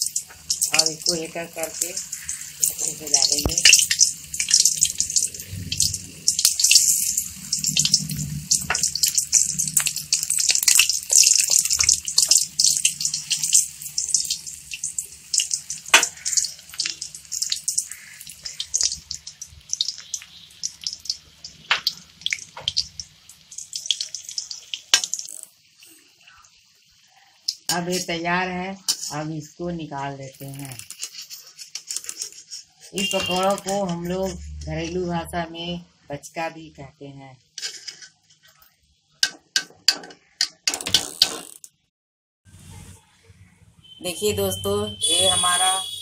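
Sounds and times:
deep-frying sizzle with pops: 0:00.0 - 0:35.3.

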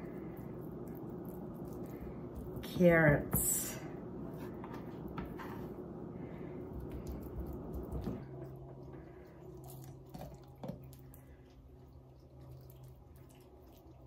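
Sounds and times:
hands squishing grated carrot: 0:00.0 - 0:03.7.

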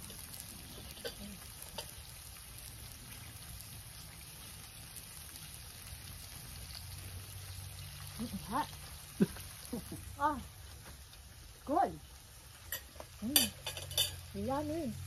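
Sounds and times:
meat sizzling on grill: 0:00.0 - 0:15.0
cutlery clicking on plate: 0:00.9 - 0:02.0, 0:12.7 - 0:14.2.

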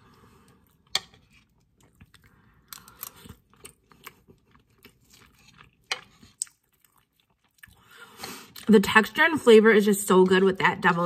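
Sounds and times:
person chewing with wet mouth clicks: 0:00.7 - 0:07.9.

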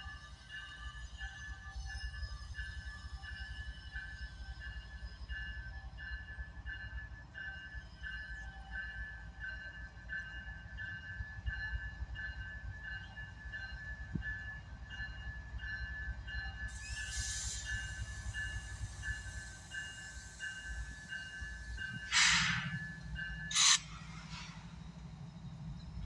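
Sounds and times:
locomotive bell ringing: 0:00.0 - 0:25.7
diesel locomotive rumble: 0:15.0 - 0:26.0
air hissing: 0:22.0 - 0:22.9.

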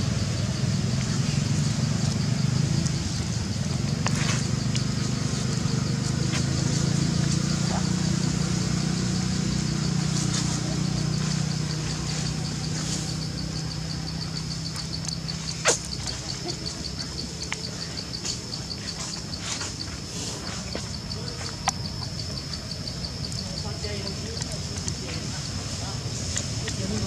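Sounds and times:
high insect drone: 0:00.0 - 0:27.0
low engine-like hum: 0:00.0 - 0:27.0.

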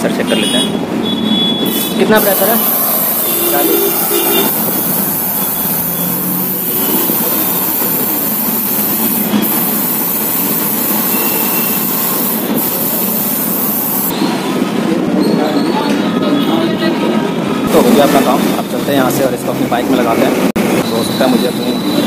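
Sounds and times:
compressed air hissing into tyre: 0:01.6 - 0:14.1.

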